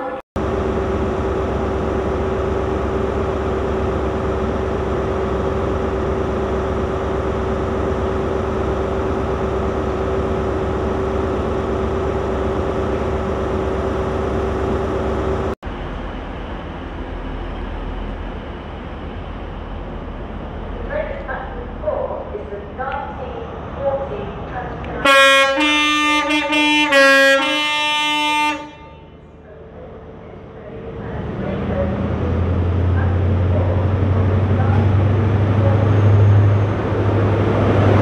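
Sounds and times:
distant train engine: 0.0 - 38.0
high steady whine: 0.4 - 23.3
diesel engine idling: 0.4 - 38.0.

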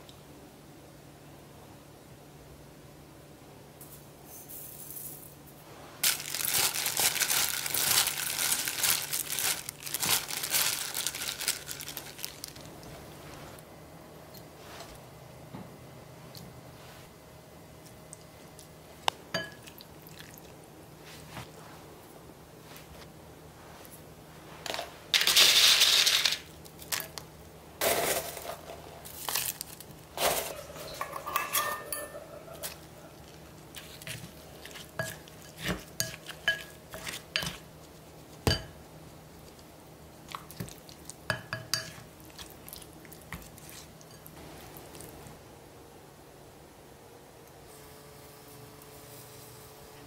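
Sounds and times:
bean sprouts rustling in steel bowl: 6.0 - 13.6, 24.4 - 27.1, 27.8 - 38.4
chopped vegetables pouring into bowl: 27.8 - 30.7.

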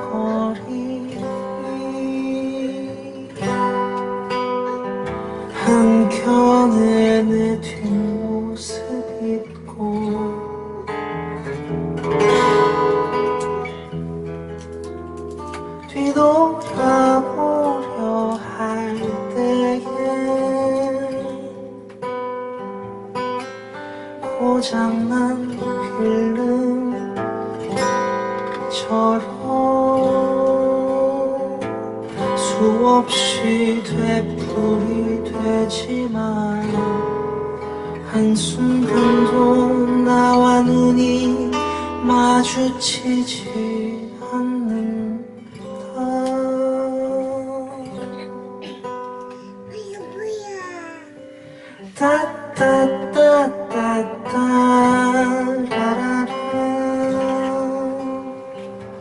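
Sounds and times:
man singing into microphone: 0.0 - 4.0, 4.8 - 11.0, 15.8 - 21.8, 24.2 - 27.2, 28.6 - 31.7, 32.3 - 37.3, 37.9 - 48.4, 51.7 - 59.0
acoustic guitar playing: 0.0 - 59.0.

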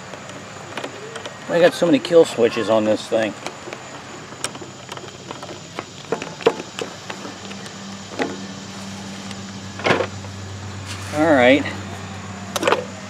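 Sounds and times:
steady low hum: 0.0 - 13.0
tools clicking on parts: 3.1 - 8.4.

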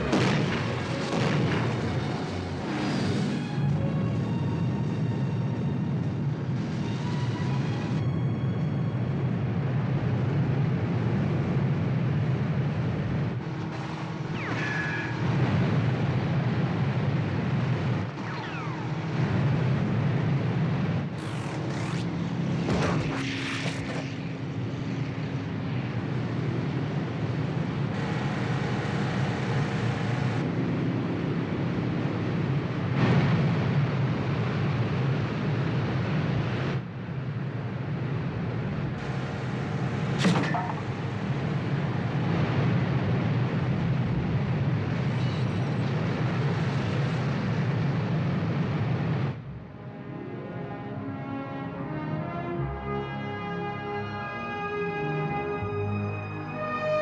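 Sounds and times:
speedboat engine drone: 0.0 - 32.4, 49.4 - 57.0.

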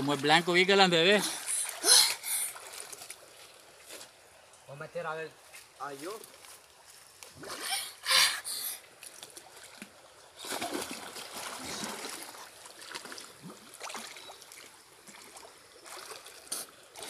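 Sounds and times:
water splashing around swimmer: 0.0 - 4.2, 8.9 - 17.0.

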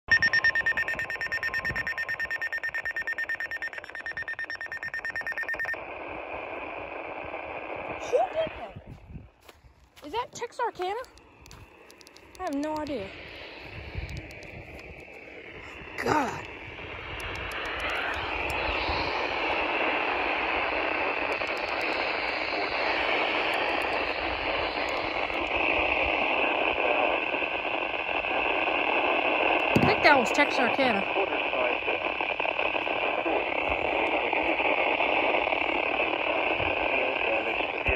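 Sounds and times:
rapid high-pitched beeping: 0.1 - 5.8
steady radio hiss: 0.2 - 37.9.

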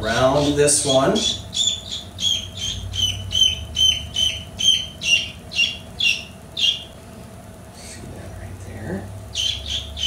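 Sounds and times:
baby chick peeping: 0.0 - 7.0, 9.3 - 10.0.

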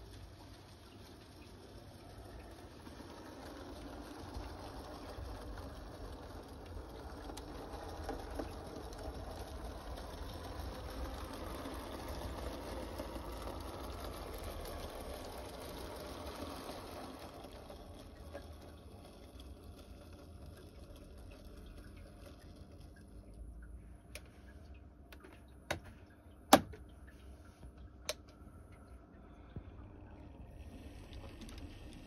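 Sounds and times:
model train rolling on track: 0.0 - 23.4.

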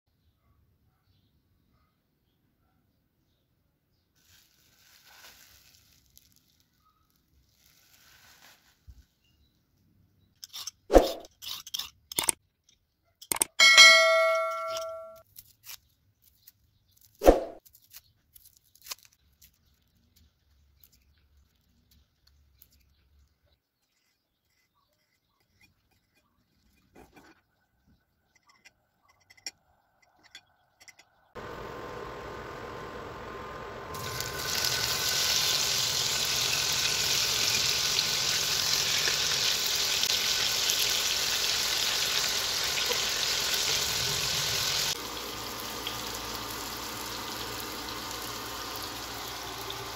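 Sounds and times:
knife and peeler on cutting board: 10.4 - 12.4, 17.2 - 17.6
bell chime ding: 13.6 - 15.2.

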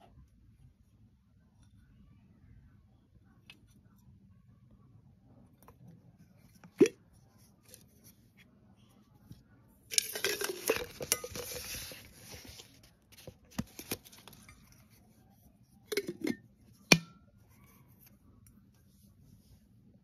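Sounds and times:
glass jar clinks and knocks: 9.9 - 11.8
rustling: 9.9 - 15.1.

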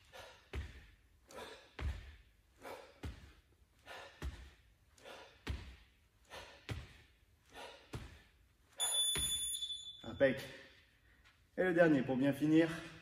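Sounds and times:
person breathing hard: 0.0 - 8.5.

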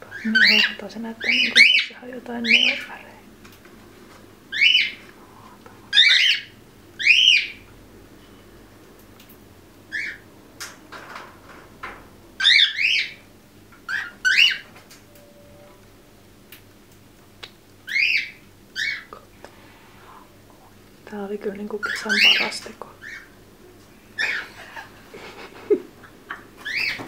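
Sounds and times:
parrots chirping: 0.1 - 3.0, 4.5 - 5.0, 5.9 - 7.7, 9.9 - 10.3, 12.4 - 14.7, 17.8 - 19.1, 21.8 - 23.4, 24.2 - 25.5, 26.3 - 27.0.

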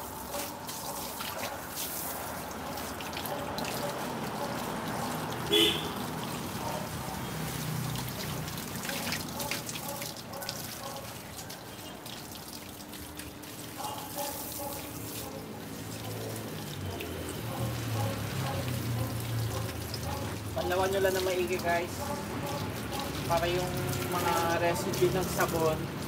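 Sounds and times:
hose water splashing: 0.0 - 26.0.

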